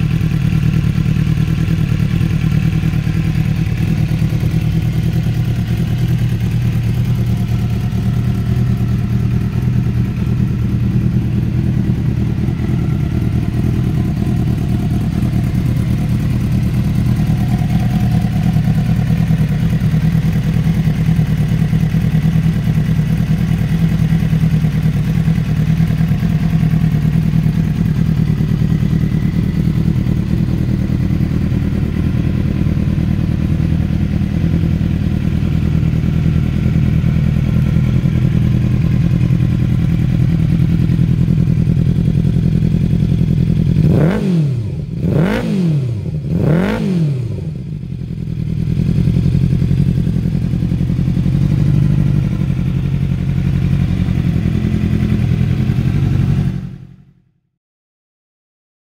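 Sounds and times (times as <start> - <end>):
motorcycle engine idling and revving: 0.0 - 57.4.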